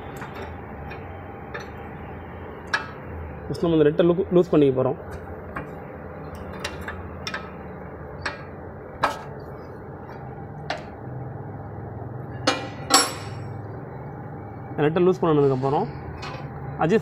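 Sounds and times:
spanner clinking on metal: 6.4s - 7.6s, 12.4s - 13.5s.

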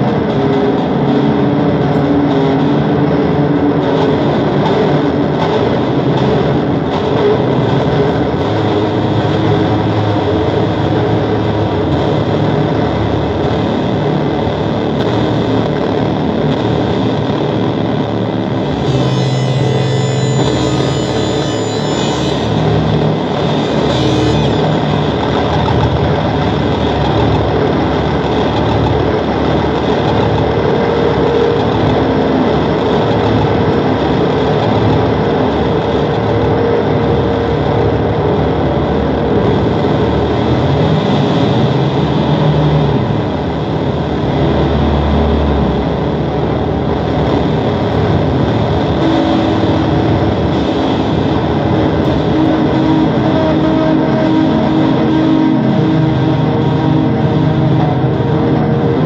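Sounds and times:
held drone tones: 0.0s - 59.0s
deep low swell: 0.1s - 59.0s
sliding pitches: 18.0s - 40.2s.

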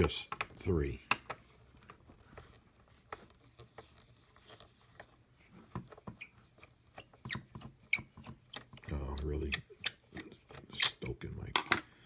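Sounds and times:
screwdriver scraping and clicking: 7.0s - 11.2s.

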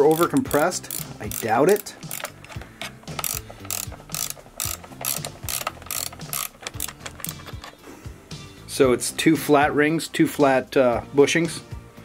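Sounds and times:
ratchet wrench clicking: 0.0s - 7.8s.

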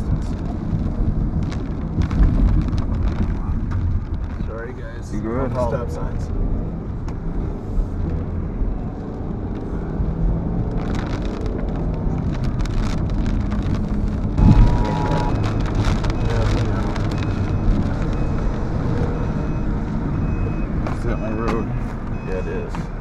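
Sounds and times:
car engine and road rumble: 0.0s - 23.0s
rain spattering on car: 0.0s - 23.0s
wind gusts: 0.0s - 23.0s
short beep: 14.4s - 18.4s.

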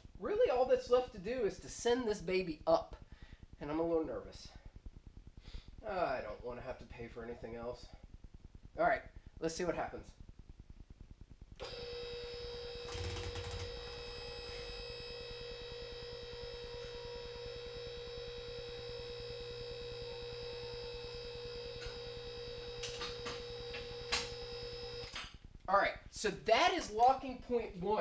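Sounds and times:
electric hydraulic pump motor humming: 11.6s - 25.1s.

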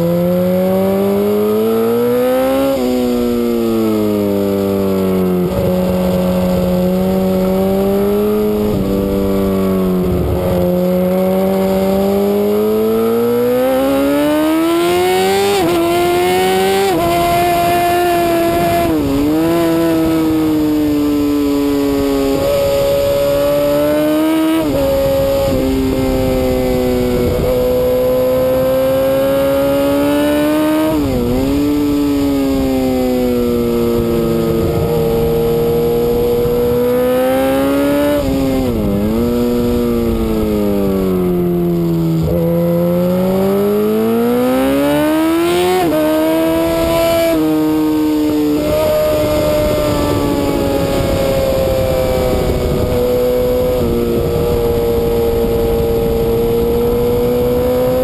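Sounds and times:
motorcycle engine at high revs: 0.0s - 58.0s
wind rushing: 46.2s - 58.0s.

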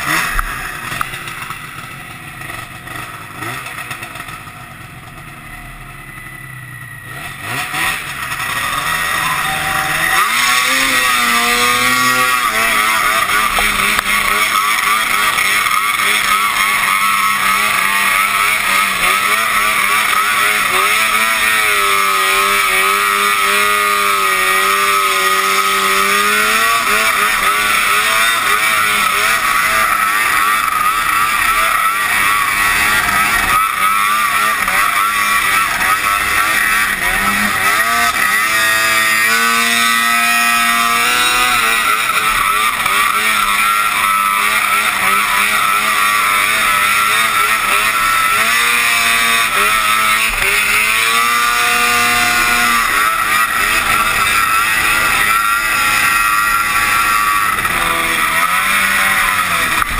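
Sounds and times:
snowmobile engine revving: 0.0s - 59.9s.

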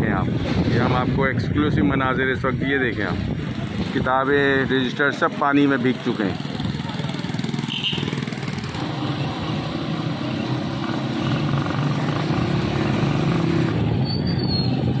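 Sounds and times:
auto-rickshaw engines: 0.0s - 15.0s
small motorcycle engines: 5.8s - 15.0s.

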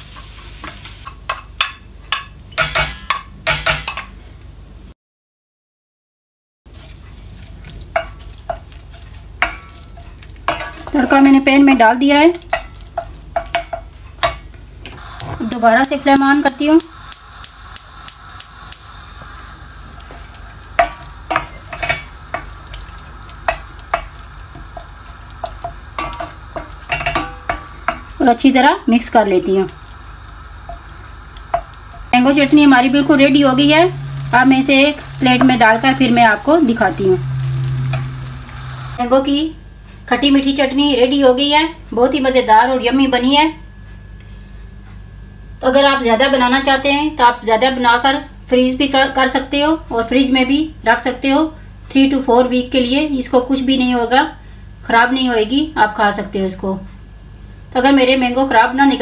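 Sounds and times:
light sizzle: 0.0s - 4.2s, 6.7s - 44.7s
wooden spoon scraping a pan: 6.7s - 11.0s
gas igniter clicking: 15.0s - 20.2s.

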